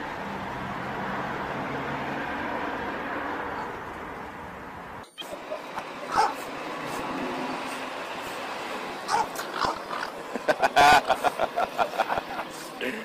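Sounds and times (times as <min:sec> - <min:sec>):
small dog barking and yipping: 0:06.0 - 0:06.5, 0:09.1 - 0:09.9.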